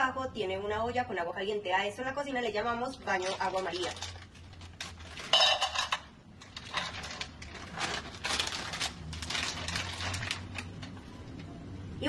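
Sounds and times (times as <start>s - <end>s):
plastic bag rustling: 3.0s - 11.5s.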